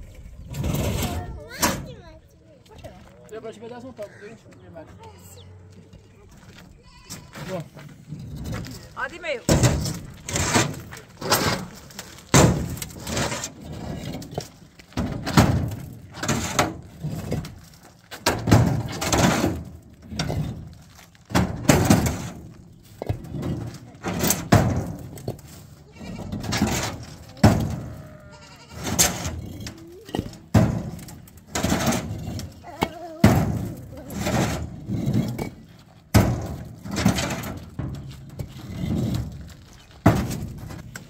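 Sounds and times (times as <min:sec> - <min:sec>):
concrete blocks knocking and scraping: 0:00.0 - 0:41.0
bleating: 0:06.7 - 0:07.6, 0:25.8 - 0:26.6, 0:27.6 - 0:29.1.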